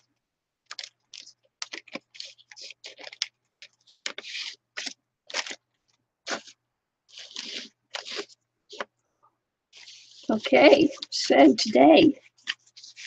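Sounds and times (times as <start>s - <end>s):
plastic bag and papers crinkling: 0.6s - 8.8s.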